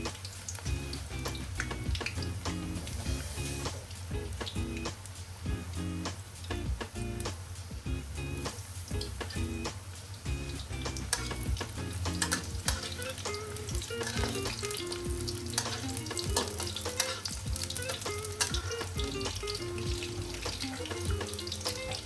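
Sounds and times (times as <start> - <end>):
food deep-frying in oil: 0.0 - 22.0
metal spatula stirring in wok: 12.1 - 22.0.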